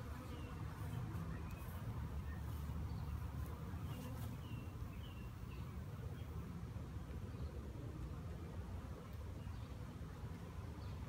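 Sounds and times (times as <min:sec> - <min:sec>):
honey bees buzzing: 0:00.0 - 0:06.0.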